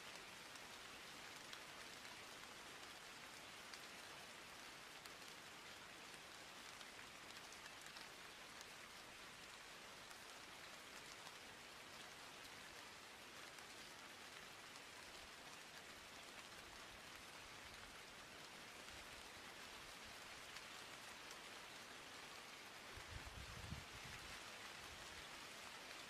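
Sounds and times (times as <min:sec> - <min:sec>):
faint hiss with crackle: 0:00.0 - 0:26.0.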